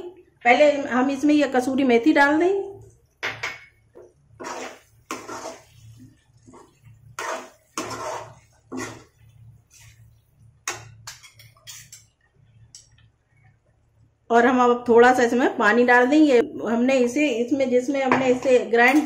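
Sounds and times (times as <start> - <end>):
spoon scraping a metal pan: 3.3 - 12.9.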